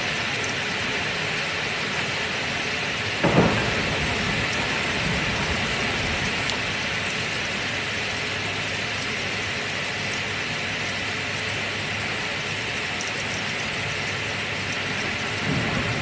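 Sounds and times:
steady rain: 0.0 - 16.0
thunderclap rumbling: 3.2 - 7.6, 15.0 - 16.0.

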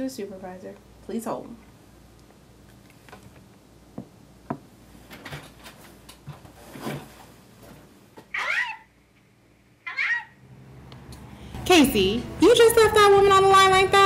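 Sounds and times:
office chair rustling: 4.9 - 8.7.

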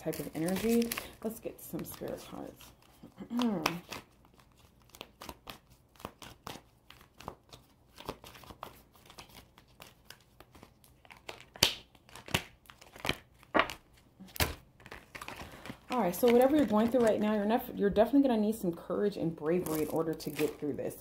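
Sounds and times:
cards being shuffled: 0.0 - 17.6, 19.3 - 21.0
cards slapping: 3.2 - 17.1.

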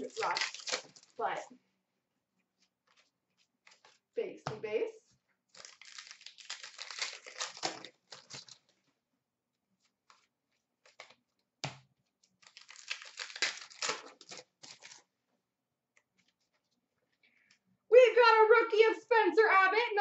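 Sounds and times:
card pack wrapper crinkling: 0.0 - 1.2, 5.5 - 8.8, 10.1 - 11.2, 12.4 - 15.1.

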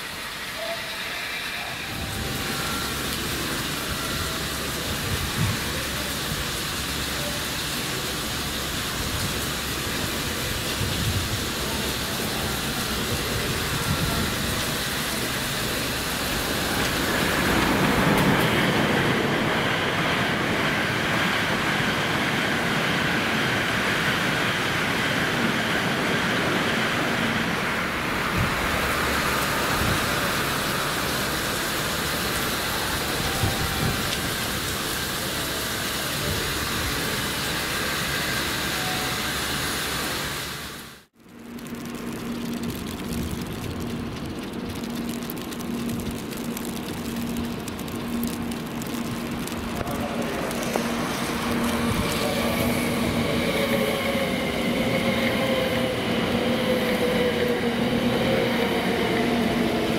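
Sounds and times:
train rushing past: 0.0 - 41.1, 45.4 - 59.9
track sprinklers hissing: 0.0 - 59.9.

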